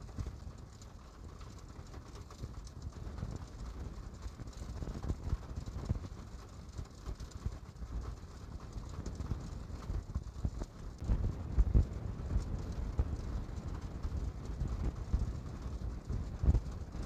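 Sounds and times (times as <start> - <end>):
raindrops knocking on a surface: 0.0 - 17.0.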